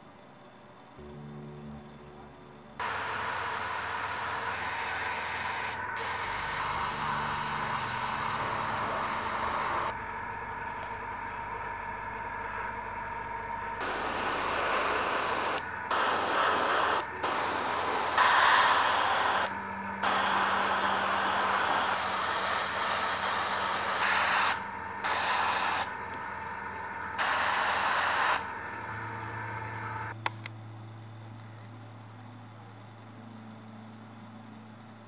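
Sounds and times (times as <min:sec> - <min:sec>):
steady hum: 0:00.0 - 0:35.0
airbrush spraying hiss: 0:02.8 - 0:09.9, 0:13.8 - 0:25.9, 0:27.2 - 0:28.5.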